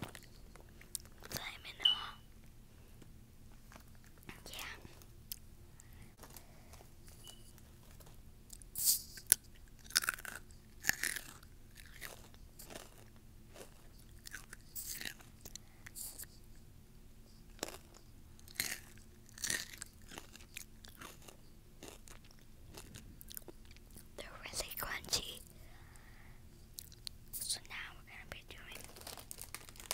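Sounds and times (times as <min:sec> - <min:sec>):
quiet chewing: 0:00.0 - 0:02.1, 0:03.6 - 0:16.6, 0:17.4 - 0:24.2, 0:26.6 - 0:29.9
crunching chips: 0:09.1 - 0:15.6, 0:17.6 - 0:24.0, 0:28.6 - 0:29.9.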